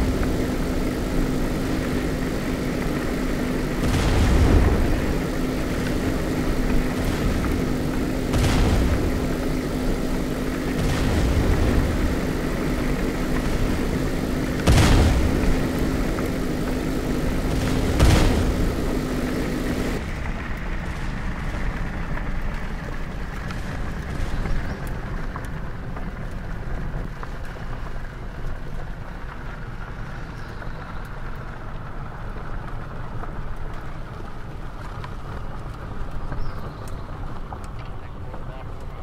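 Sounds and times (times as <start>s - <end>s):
steady hum: 0.0s - 22.8s
vehicle engine rumble: 0.0s - 39.0s.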